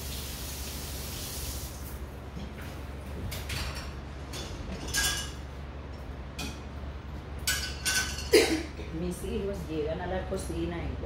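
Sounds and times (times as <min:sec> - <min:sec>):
steady low hum: 0:01.8 - 0:11.0
kitchen utensils knocking and clinking: 0:03.3 - 0:05.4, 0:07.4 - 0:08.6.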